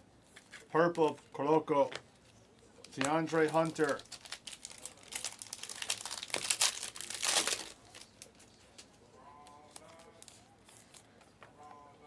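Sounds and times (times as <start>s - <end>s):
cards rustling and clicking: 1.8s - 8.9s
foil wrapper crinkling and tearing: 2.8s - 8.6s.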